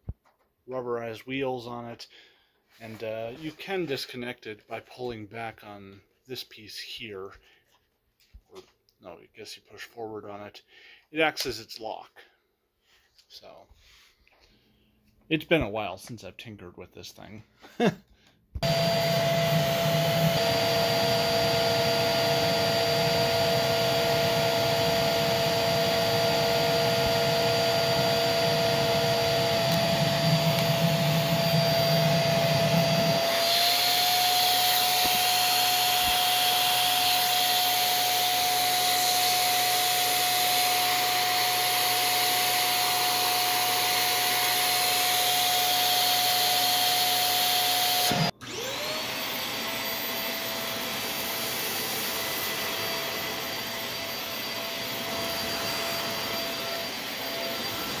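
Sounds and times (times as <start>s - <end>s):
vacuum cleaner motor whine: 18.6s - 58.0s.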